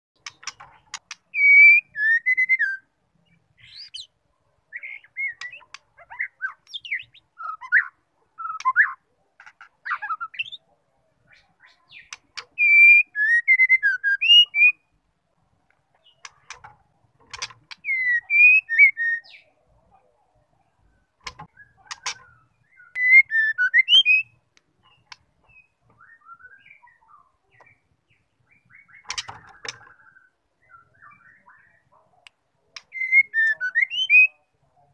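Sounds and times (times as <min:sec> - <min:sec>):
bird singing whistled phrases: 0:01.3 - 0:02.9, 0:04.8 - 0:09.0, 0:11.9 - 0:14.8, 0:17.8 - 0:19.5, 0:22.6 - 0:24.4, 0:25.5 - 0:27.3, 0:32.9 - 0:34.4
bird sharp clicks: 0:12.0 - 0:12.6, 0:21.2 - 0:22.3, 0:28.9 - 0:29.9, 0:32.2 - 0:33.0.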